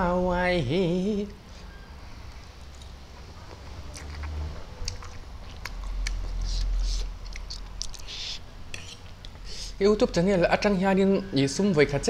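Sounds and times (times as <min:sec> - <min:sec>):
wet mouth smacks and clicks: 0:02.8 - 0:09.4
person slurping and chewing noodles: 0:03.4 - 0:09.8.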